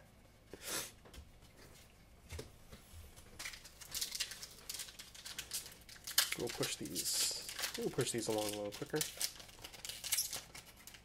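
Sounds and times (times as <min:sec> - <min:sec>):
foil wrapper crinkling: 0:03.3 - 0:11.0.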